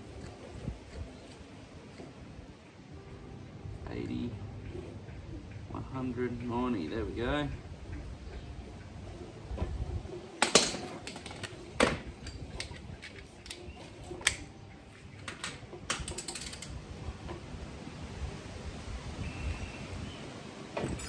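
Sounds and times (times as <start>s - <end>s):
wrench clicking on metal bolts: 15.3s - 16.8s.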